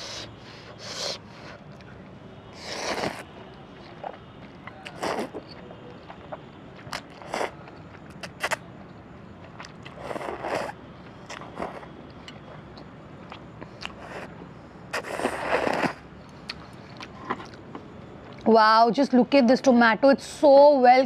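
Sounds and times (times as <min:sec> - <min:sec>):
person slurping noodles: 0:02.6 - 0:03.2, 0:05.0 - 0:05.4, 0:09.9 - 0:10.8, 0:14.9 - 0:16.0.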